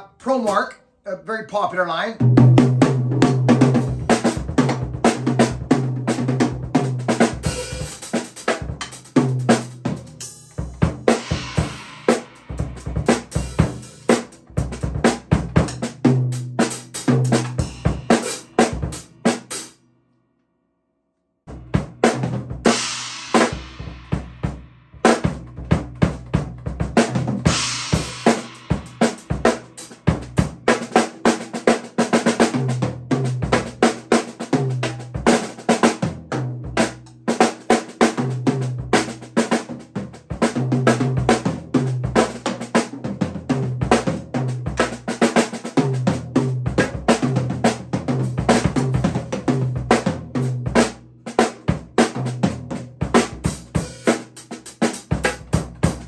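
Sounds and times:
snare and bass drum strokes: 2.2s - 19.8s, 21.5s - 56.0s
hi-hat and cymbal crashes: 27.5s - 30.0s.

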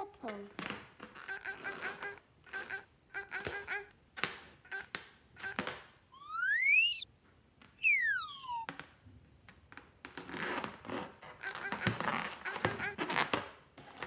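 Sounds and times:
fingers squeaking on rubber balloon: 0.6s - 3.9s, 4.6s - 7.0s, 7.8s - 8.7s, 10.0s - 14.0s
slide whistle gliding up and down: 6.2s - 7.1s, 7.8s - 8.7s.

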